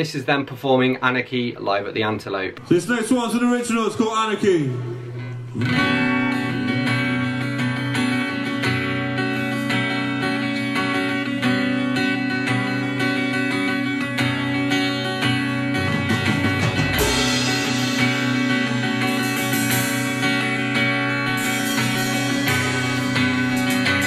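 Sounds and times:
rock band playing: 0:04.6 - 0:24.0
cymbal crash: 0:16.7 - 0:24.0.

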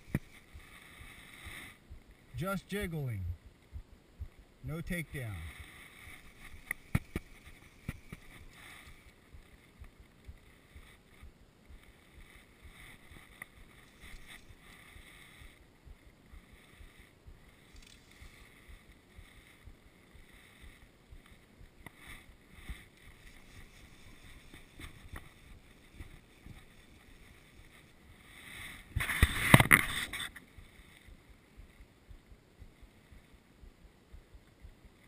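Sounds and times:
faint outdoor ambience: 0:00.0 - 0:35.0
cloth brushing against camera: 0:22.0 - 0:30.4.

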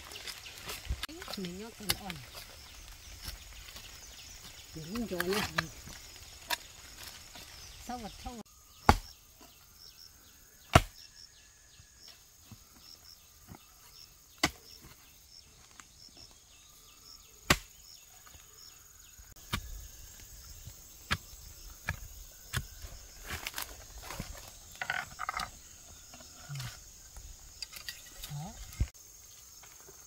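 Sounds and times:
insects chirping: 0:00.0 - 0:30.0
hand tool chopping into earth: 0:08.8 - 0:09.2, 0:10.6 - 0:11.1, 0:14.3 - 0:14.8, 0:17.4 - 0:17.8, 0:19.4 - 0:19.8.

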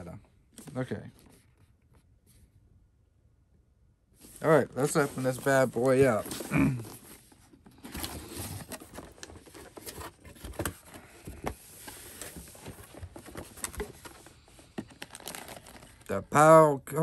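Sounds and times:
cardboard box rustling: 0:04.3 - 0:16.1.

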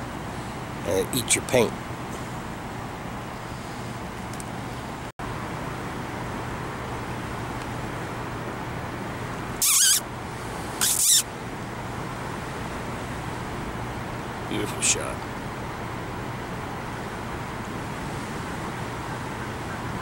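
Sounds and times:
high-pitched hissing bursts: 0:09.6 - 0:10.0, 0:10.7 - 0:11.3.

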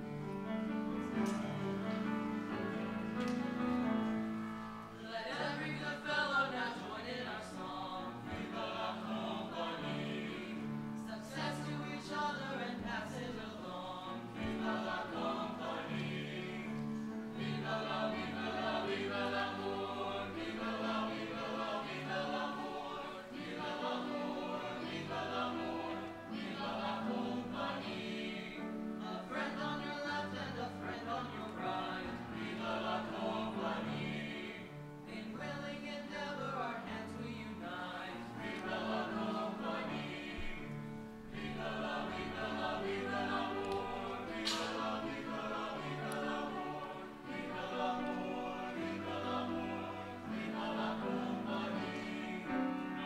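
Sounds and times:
piano accompaniment: 0:00.0 - 0:53.0
boys' choir singing: 0:01.0 - 0:53.0.

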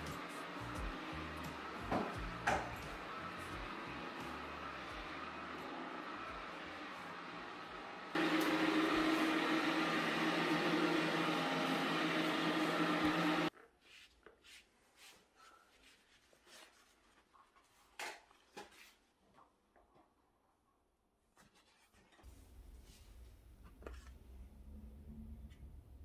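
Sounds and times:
floor cleaner motor whirring: 0:00.0 - 0:13.6.

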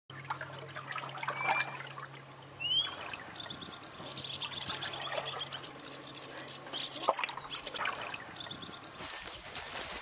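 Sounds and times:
water trickling and lapping: 0:00.1 - 0:10.0
whistled bird calls: 0:01.2 - 0:01.9, 0:02.6 - 0:09.0
high dense chirping chorus: 0:02.5 - 0:09.0.

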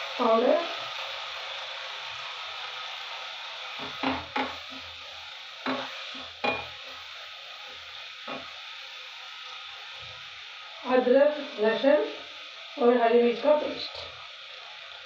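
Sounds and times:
vegetables sizzling in a pan: 0:00.0 - 0:15.0
wooden spatula knocking pan: 0:03.8 - 0:04.6, 0:05.6 - 0:06.7.

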